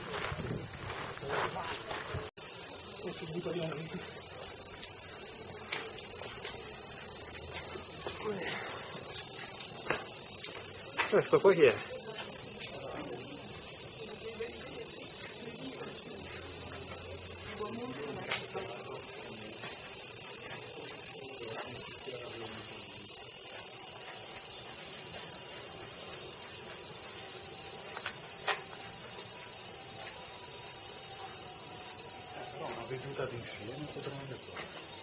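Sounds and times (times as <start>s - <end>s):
cicadas droning: 0.0s - 35.0s.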